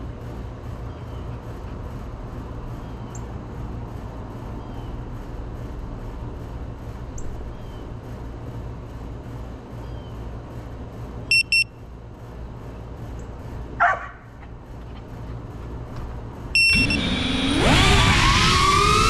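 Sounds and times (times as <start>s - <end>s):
steady low rumble: 0.0s - 19.0s
high-pitched electronic beeps: 16.6s - 17.2s.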